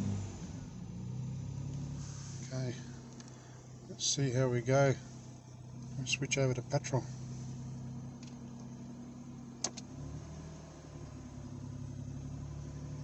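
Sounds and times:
car engine idling: 0:00.0 - 0:13.0
fuel switch click: 0:09.6 - 0:09.9.

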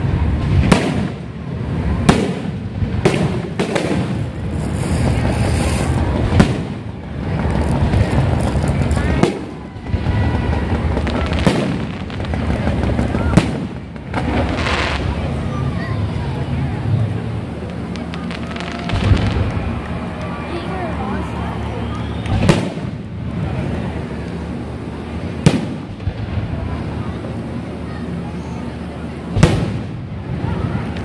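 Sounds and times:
firework shells bursting: 0:02.0 - 0:15.3, 0:17.6 - 0:20.4.

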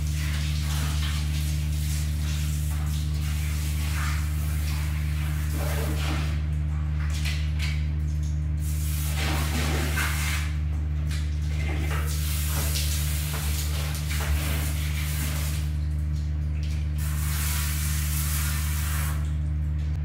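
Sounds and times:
water spraying from bidet sprayer: 0:00.0 - 0:06.4, 0:08.6 - 0:10.6, 0:11.6 - 0:15.8, 0:17.0 - 0:19.4
steady low hum: 0:00.0 - 0:20.0.

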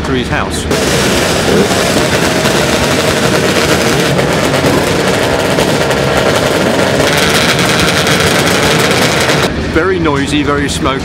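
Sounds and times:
two-stroke racing motorcycles: 0:00.7 - 0:09.5.

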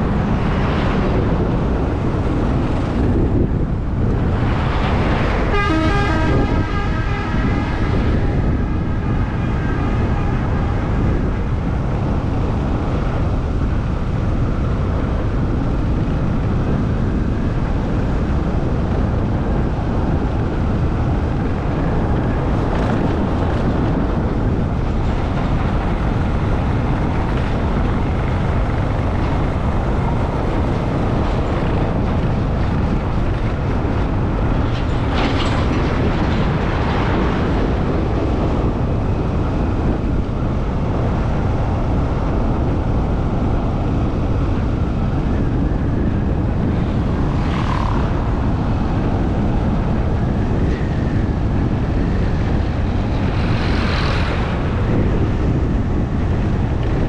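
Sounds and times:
road and wind rumble: 0:00.0 - 0:57.0
vehicle horn: 0:05.5 - 0:07.8.

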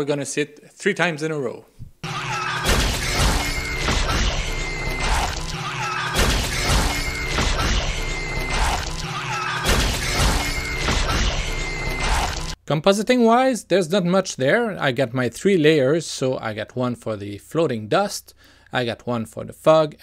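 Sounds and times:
crashing shattering impacts: 0:02.0 - 0:12.6.

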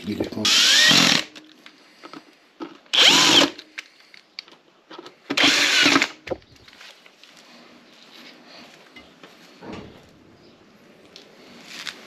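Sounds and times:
cordless drill whirring: 0:00.4 - 0:01.4, 0:02.9 - 0:03.6, 0:05.3 - 0:06.2.

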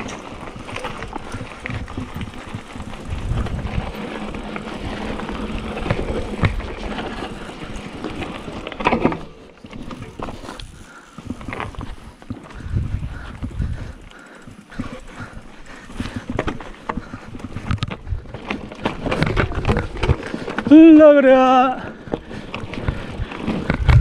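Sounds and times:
tyres crunching over gravel: 0:00.0 - 0:12.7
bike jolt: 0:00.0 - 0:24.0
bike rattling: 0:00.0 - 0:24.0.

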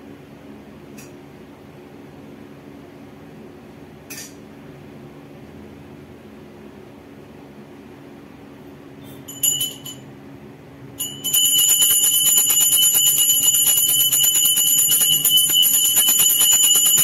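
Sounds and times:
handbell ringing: 0:09.1 - 0:10.1, 0:11.0 - 0:17.0.

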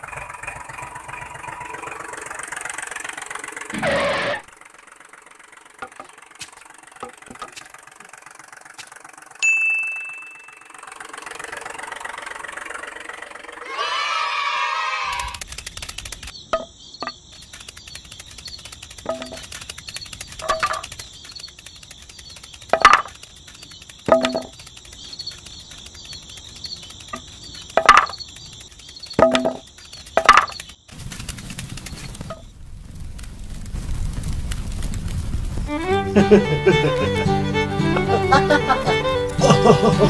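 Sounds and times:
steady high chirping: 0:00.0 - 0:13.8, 0:15.2 - 0:32.5
wooden sticks knocking together: 0:05.8 - 0:07.7, 0:18.9 - 0:19.6, 0:20.4 - 0:21.0, 0:22.6 - 0:23.3, 0:24.0 - 0:24.6, 0:27.1 - 0:28.2, 0:29.1 - 0:30.8
low rumble of fire: 0:17.4 - 0:37.2.

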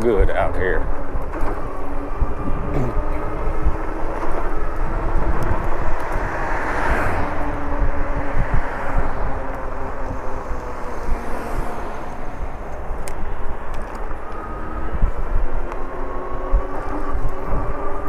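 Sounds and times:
passing vehicle: 0:00.0 - 0:18.0
road noise: 0:00.0 - 0:18.0
wind rumbling on microphone: 0:00.0 - 0:18.0.

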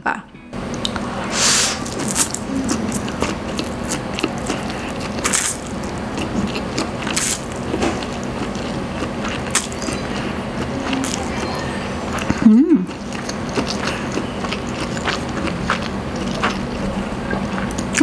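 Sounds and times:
noodle slurps: 0:00.9 - 0:02.4
wet chewing with mouth clicks: 0:01.8 - 0:18.0.

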